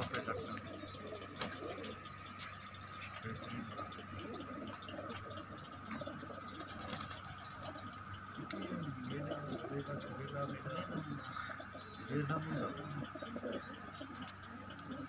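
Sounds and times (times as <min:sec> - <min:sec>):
faint steady high tone: 0:00.0 - 0:15.0
pigeons ticking and rustling: 0:00.0 - 0:15.0.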